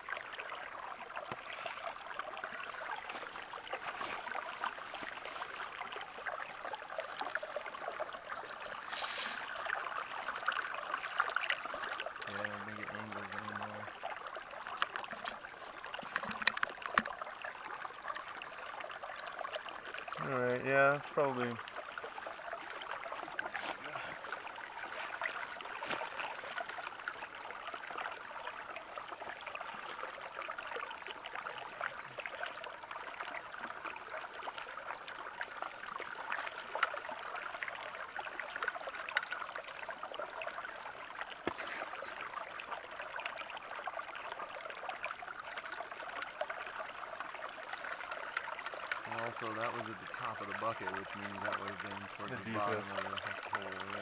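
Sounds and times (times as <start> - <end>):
water running through metal sluice: 0.0 - 54.0
faint clicks: 51.1 - 54.0.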